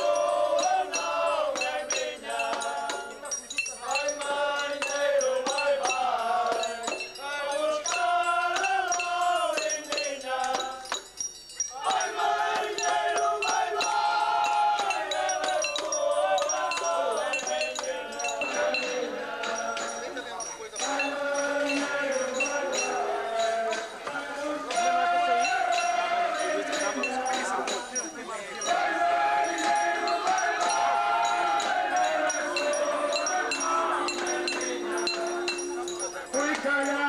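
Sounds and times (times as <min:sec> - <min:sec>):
men singing together: 0:00.0 - 0:37.0
bright metallic strikes: 0:29.6 - 0:36.7.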